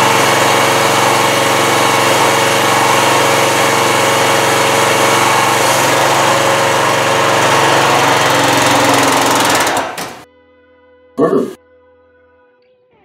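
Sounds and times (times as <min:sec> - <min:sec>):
small petrol engine running: 0:00.0 - 0:10.3.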